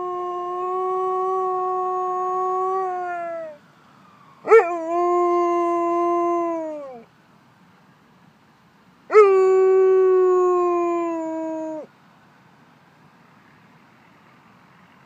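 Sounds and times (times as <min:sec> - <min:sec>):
dog howling: 0:00.0 - 0:03.6, 0:04.4 - 0:07.0, 0:09.1 - 0:11.9.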